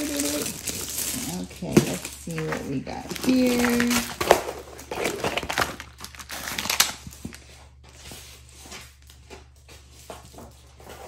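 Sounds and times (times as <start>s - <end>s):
plastic sleeve crinkling: 0.0s - 9.2s.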